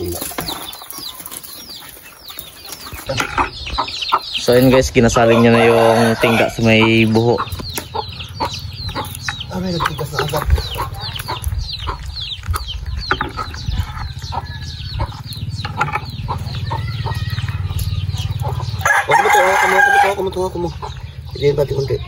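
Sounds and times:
chickens clucking: 0:00.0 - 0:22.0
rooster crowing: 0:05.2 - 0:07.2, 0:16.4 - 0:17.9, 0:18.7 - 0:20.4
steady low rumble: 0:06.5 - 0:18.9.

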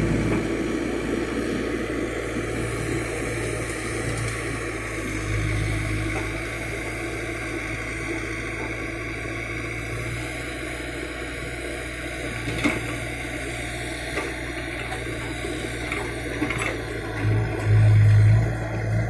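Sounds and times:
diesel engine humming: 0:00.0 - 0:19.0
backhoe digging into soil: 0:14.0 - 0:19.0.

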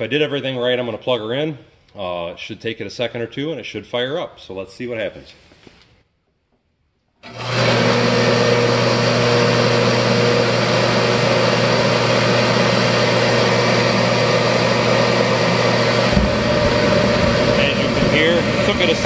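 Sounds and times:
heater fan motor hum: 0:07.3 - 0:19.0
loud rush of air: 0:15.9 - 0:19.0.

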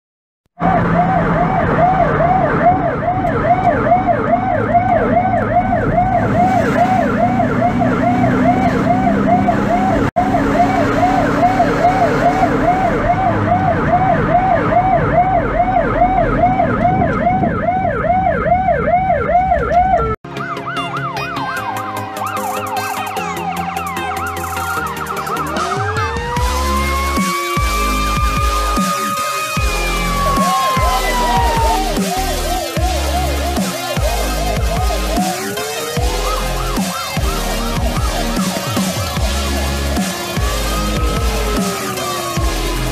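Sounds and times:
engine and road noise: 0:00.5 - 0:42.9
siren yelping: 0:00.6 - 0:42.9
music: 0:20.2 - 0:42.9.

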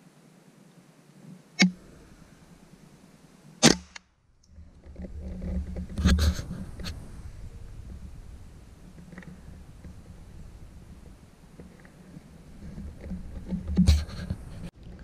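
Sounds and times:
rustling: 0:04.4 - 0:15.0.

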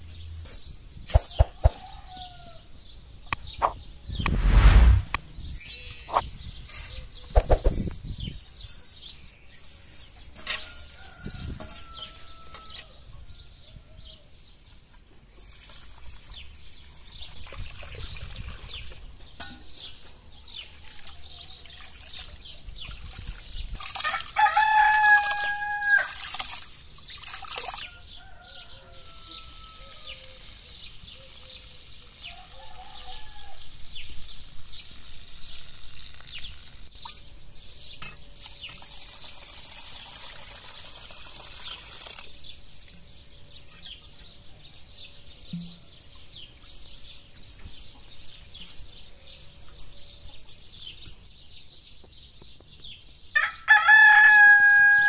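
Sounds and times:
birds chirping: 0:00.1 - 0:10.2
rooster crowing: 0:24.4 - 0:26.1, 0:27.9 - 0:30.4, 0:32.3 - 0:33.7, 0:53.4 - 0:55.0.

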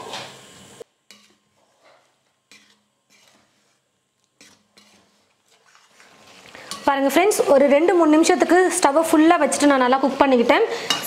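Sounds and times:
metal spatula scraping a pot: 0:01.1 - 0:07.5.

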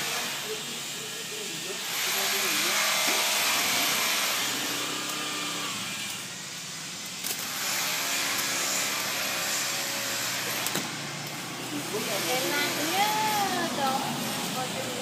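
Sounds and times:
street traffic noise: 0:00.0 - 0:15.0.

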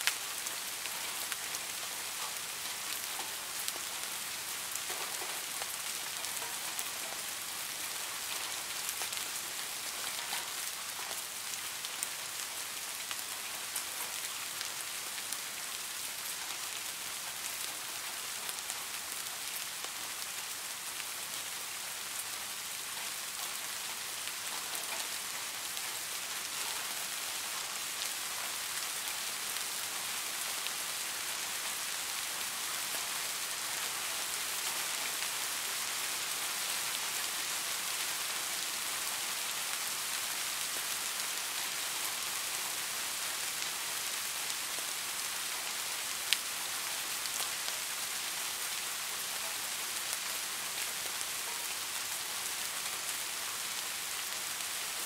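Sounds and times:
steady rain falling: 0:00.0 - 0:55.0.

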